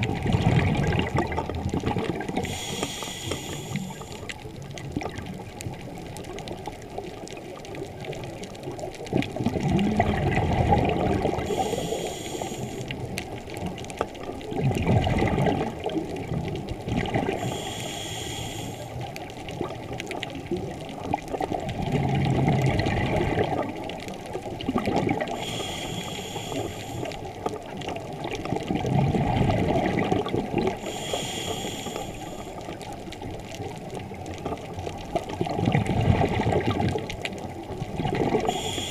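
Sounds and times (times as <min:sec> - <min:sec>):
bubbling exhaled air underwater: 0:00.0 - 0:38.9
regulator inhalation hiss: 0:02.4 - 0:04.3, 0:11.5 - 0:12.9, 0:17.4 - 0:19.0, 0:25.4 - 0:27.2, 0:30.8 - 0:32.7, 0:38.4 - 0:38.9.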